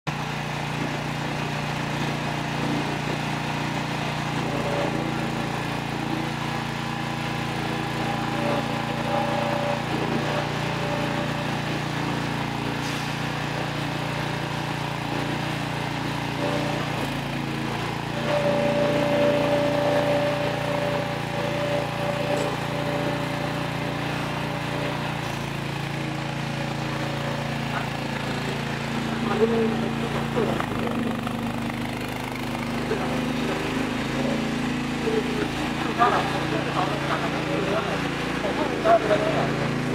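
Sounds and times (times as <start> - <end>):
loader engine running: 0.1 - 39.9
high whine: 17.7 - 25.4.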